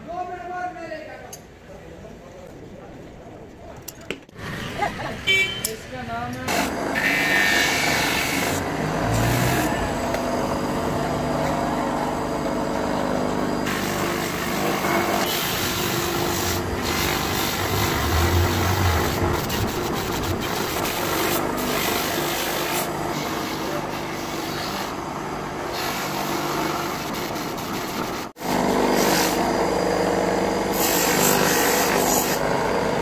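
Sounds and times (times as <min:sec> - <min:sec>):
abrasive wheel rasping rubber: 0:06.5 - 0:10.0, 0:13.7 - 0:25.0
electric motor running: 0:06.5 - 0:25.1.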